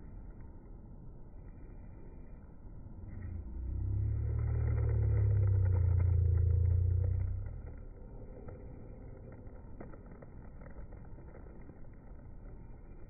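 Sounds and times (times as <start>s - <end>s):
vehicle engine passing by: 3.0s - 9.0s.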